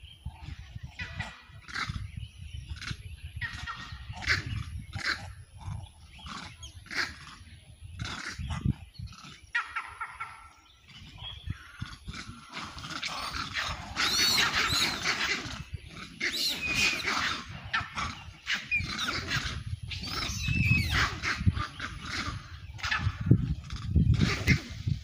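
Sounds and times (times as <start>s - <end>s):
monkeys screaming: 11.8s - 23.3s.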